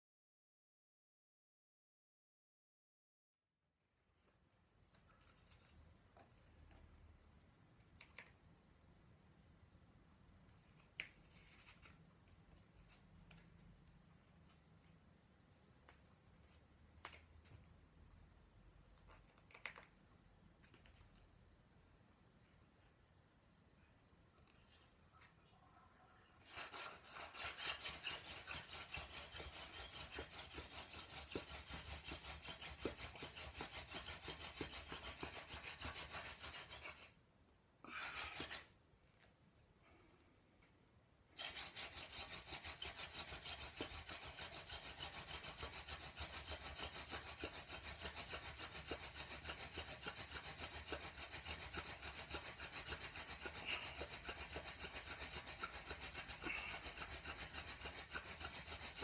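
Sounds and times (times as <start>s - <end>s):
wooden spindle rubbing on board: 26.4s - 37.2s, 38.0s - 38.7s, 41.4s - 59.0s.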